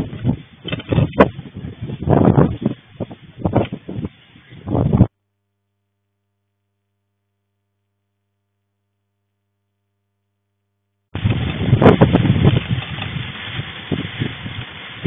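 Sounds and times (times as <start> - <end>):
gusty wind buffeting microphone: 0.0 - 5.1, 11.2 - 15.0
heavy rain: 11.2 - 15.0.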